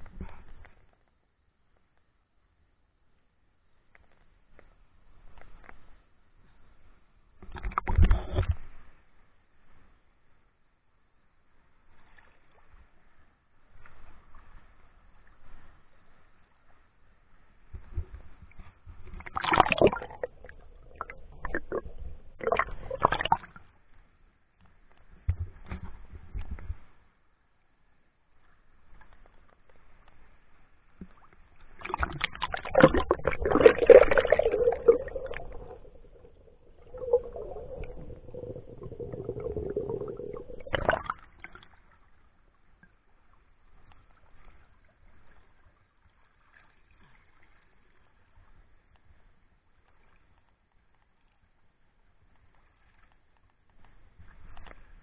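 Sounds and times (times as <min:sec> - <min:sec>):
creek water sloshing and splashing: 0:31.8 - 0:41.9.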